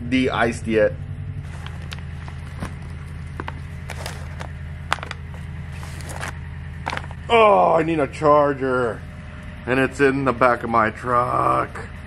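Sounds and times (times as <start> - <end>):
steady low hum: 0.0 - 12.0
plastic sleeves rustling: 1.4 - 7.3.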